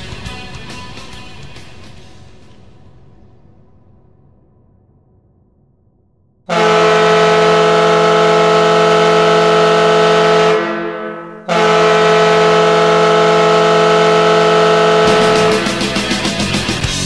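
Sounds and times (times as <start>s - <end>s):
goal horn blasts: 6.5s - 16.4s.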